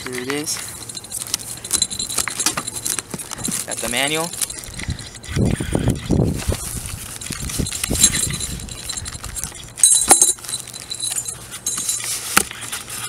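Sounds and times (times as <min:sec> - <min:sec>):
plastic crinkling: 0:00.0 - 0:05.4, 0:06.0 - 0:13.0
light clinks: 0:00.0 - 0:05.6, 0:07.1 - 0:12.3
styrofoam rubbing: 0:11.4 - 0:13.0.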